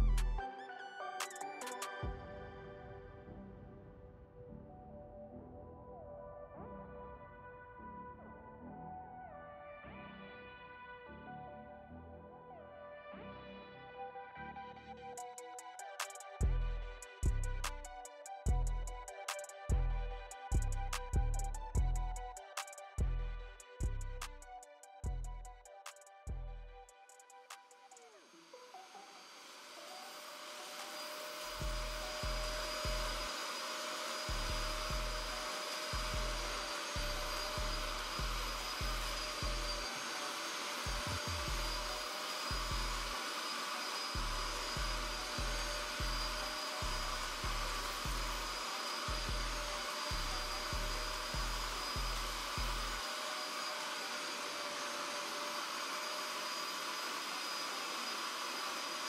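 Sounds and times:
suction motor hiss and whine: 15.2 - 59.0.

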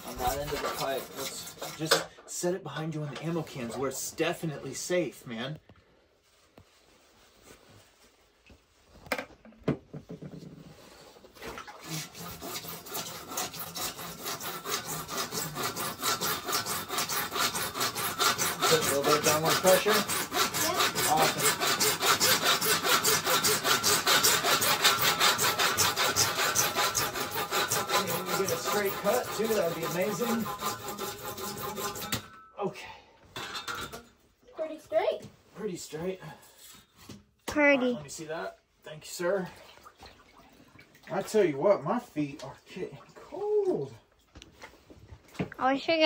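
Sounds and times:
hand saw cutting plastic pipe: 0.0 - 2.2, 11.4 - 32.4.

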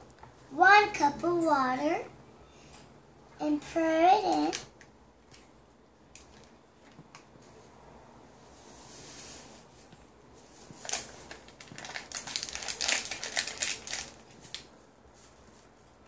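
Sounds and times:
paper envelopes crinkling: 10.6 - 14.7.

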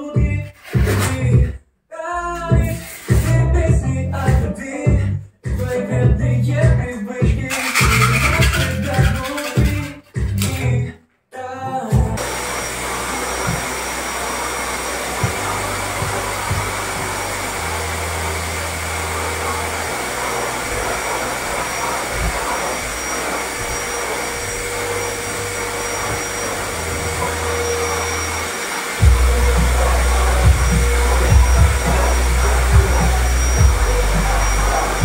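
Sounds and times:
low bass background music: 0.2 - 1.5, 2.2 - 10.9, 15.2 - 21.0, 29.0 - 35.0
electric fan motor rushing: 12.2 - 35.0.

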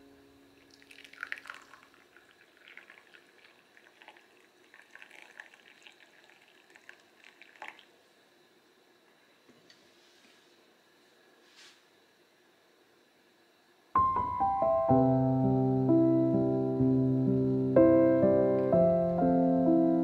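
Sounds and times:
tea trickling into glass cup: 0.6 - 8.0.

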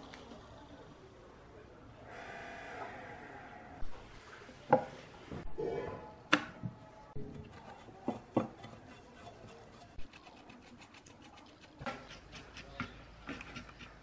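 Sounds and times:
paintbrush scrubbing metal: 7.2 - 14.0.

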